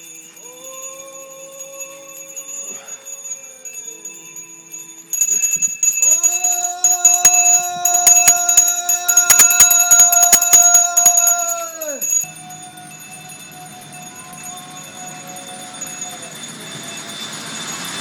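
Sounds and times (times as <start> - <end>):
hand bell ringing rapidly: 0.0 - 18.0
person chanting a long note: 6.0 - 16.6.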